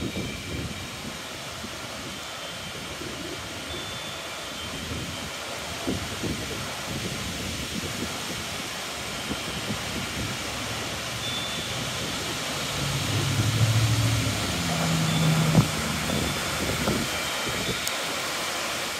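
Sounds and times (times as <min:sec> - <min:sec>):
wind rushing through foliage: 0:00.0 - 0:18.9
wind buffeting microphone: 0:04.7 - 0:17.9
low rumble: 0:11.8 - 0:17.1.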